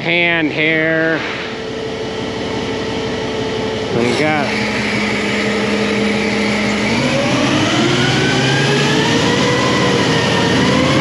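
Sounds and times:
truck engine idling and revving: 2.5s - 11.0s.

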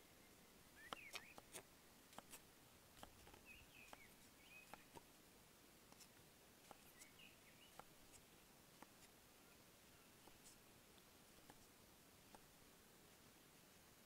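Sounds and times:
faint bird chirps: 0.0s - 1.7s, 3.0s - 5.0s, 5.9s - 10.6s.

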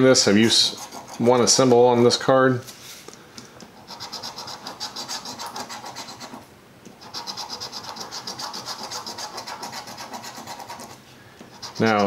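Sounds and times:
coin scratching a ticket: 0.4s - 1.6s, 3.8s - 6.4s, 7.0s - 12.0s.

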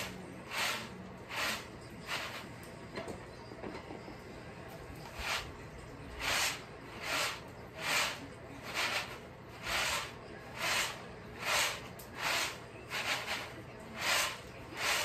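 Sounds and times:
peanuts swishing in bamboo tray: 0.0s - 2.4s, 6.2s - 15.0s.

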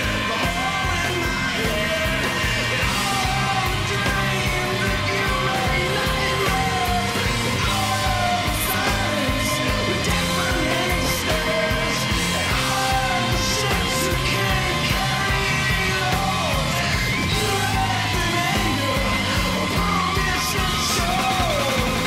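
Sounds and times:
rock song with singing: 0.0s - 22.0s.

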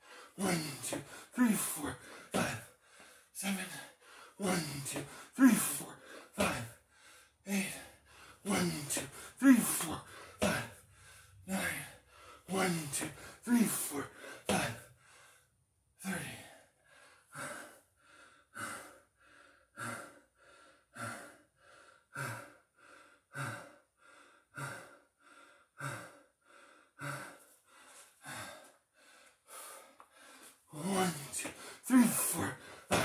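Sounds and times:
man breathing hard: 0.0s - 33.0s.

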